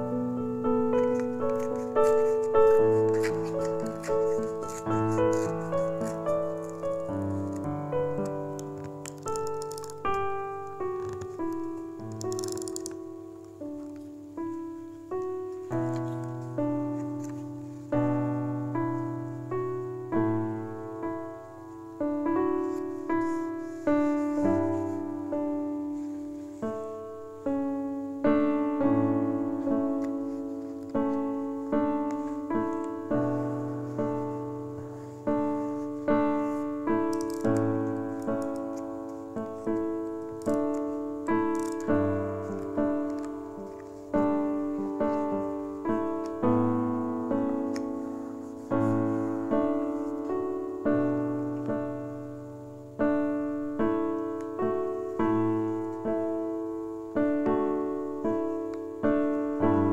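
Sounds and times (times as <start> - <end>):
gentle piano music: 0.0 - 59.9.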